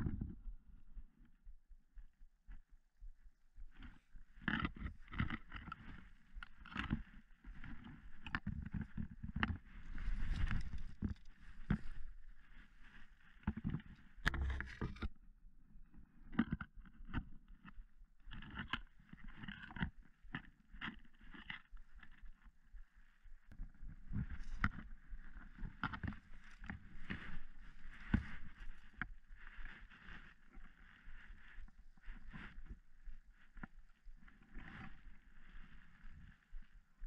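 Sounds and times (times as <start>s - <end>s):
grass rustling against legs: 9.6s - 15.0s, 23.6s - 33.7s.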